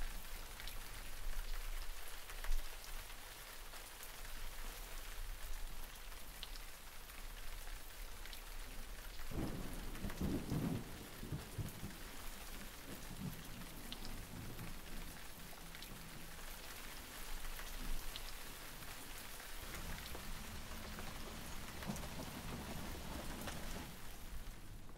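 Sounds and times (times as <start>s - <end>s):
steady rain hissing: 0.0s - 24.9s
thunder rumbling: 9.3s - 16.4s, 19.5s - 24.9s.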